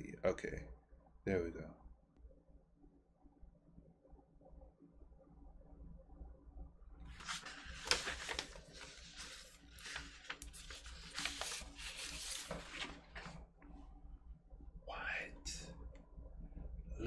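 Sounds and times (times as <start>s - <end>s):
paper sleeve crinkling: 7.1s - 13.4s.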